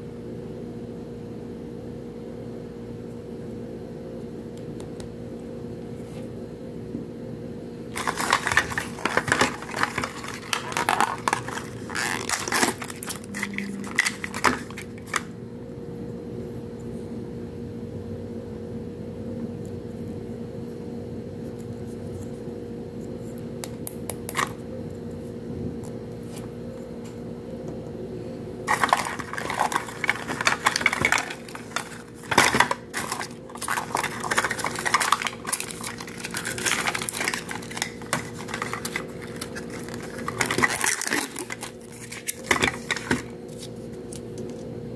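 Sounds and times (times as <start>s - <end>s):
steady low hum: 0.0s - 44.9s
plastic capsule crinkling and clicks: 8.0s - 15.3s, 28.7s - 44.6s.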